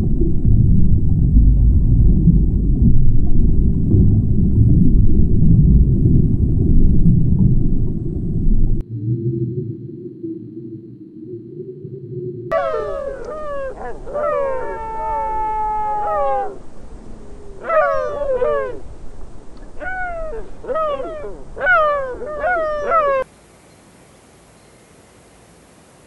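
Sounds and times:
sea lions calling: 12.5 - 18.9, 19.7 - 23.2
faint hiss: 23.2 - 26.0.

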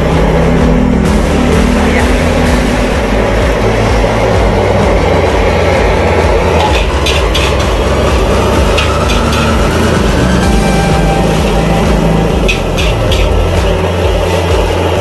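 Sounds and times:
gas burner roaring: 0.0 - 15.0
metal spatula scraping wok: 6.5 - 10.0, 10.7 - 15.0.

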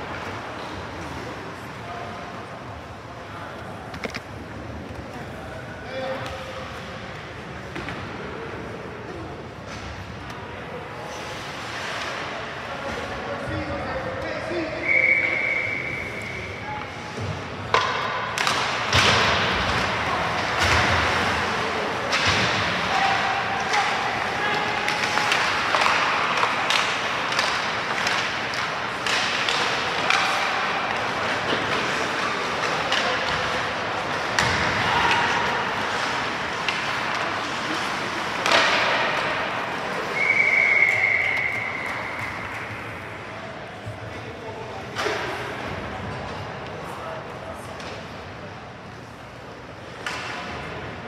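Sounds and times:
arena crowd hubbub: 0.0 - 51.0
skates scraping ice: 11.0 - 13.2, 19.1 - 43.0
hockey stick slapping puck: 17.7 - 23.0, 23.6 - 40.3.

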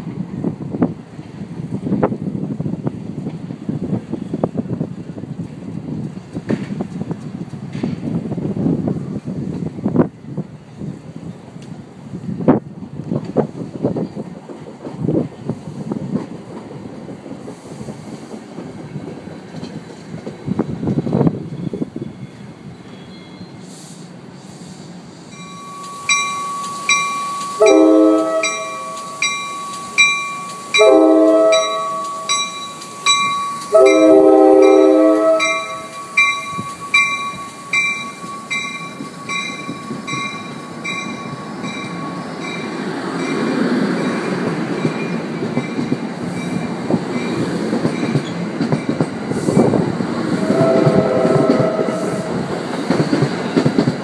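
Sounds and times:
train running noise: 0.0 - 54.0
train bell ringing: 25.2 - 49.0
train horn blasts: 25.9 - 29.4, 30.7 - 37.2, 50.3 - 52.5.

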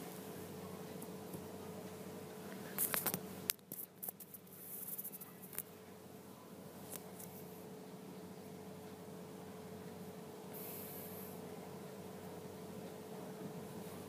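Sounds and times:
electrical hum: 0.0 - 14.0
small clicks: 2.6 - 5.7.

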